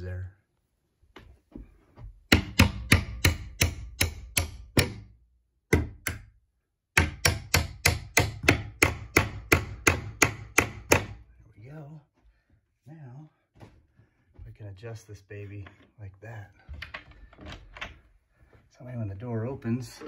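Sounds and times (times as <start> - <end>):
hammer tapping metal pin: 2.3 - 5.0.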